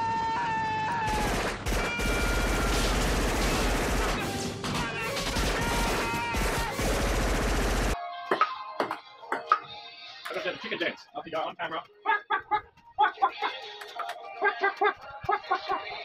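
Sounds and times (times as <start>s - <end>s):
automatic gunfire: 1.1s - 8.0s.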